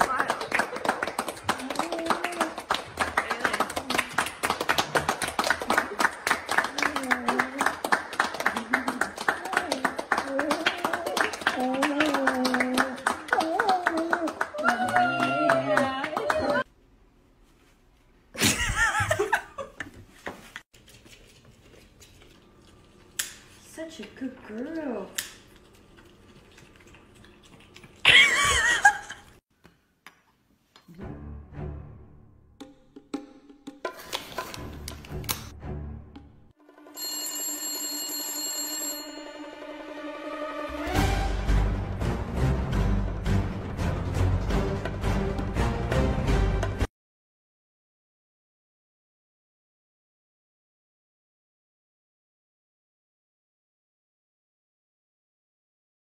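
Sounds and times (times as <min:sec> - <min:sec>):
fast hand clapping: 0:00.0 - 0:16.7
dog howling: 0:10.2 - 0:16.6.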